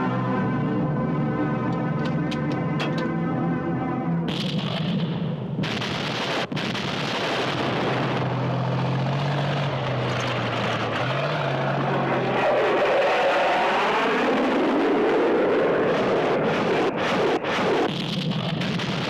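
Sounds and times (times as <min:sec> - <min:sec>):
jet fighters flying over: 0:04.2 - 0:19.0.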